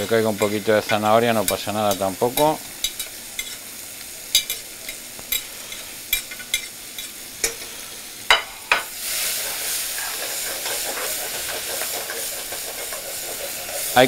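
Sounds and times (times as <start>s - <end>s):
onion sizzling in oil: 0.0s - 14.0s
tongs scraping metal pan: 9.3s - 14.0s.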